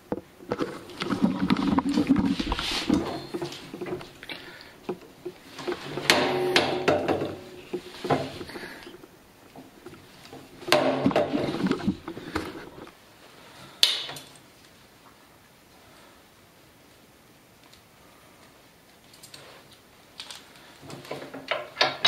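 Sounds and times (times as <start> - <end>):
parts clattering on steel frame: 0.0 - 12.9, 20.8 - 22.0.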